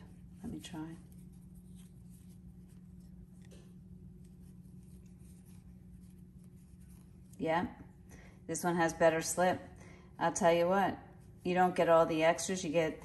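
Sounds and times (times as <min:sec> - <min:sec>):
crochet hook scratching yarn: 0:00.0 - 0:07.9
steady low hum: 0:00.0 - 0:13.0.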